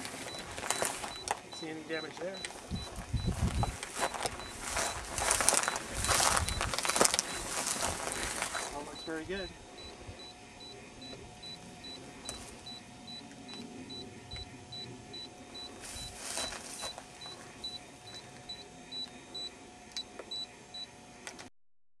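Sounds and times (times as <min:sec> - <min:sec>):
rustling in dry grass: 0:00.0 - 0:01.5, 0:02.5 - 0:09.2, 0:15.7 - 0:17.6
high electronic beeping: 0:00.0 - 0:19.6.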